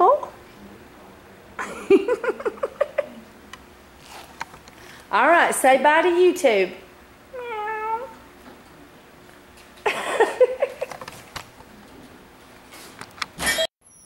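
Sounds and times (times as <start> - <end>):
cat meowing: 7.4 - 8.2.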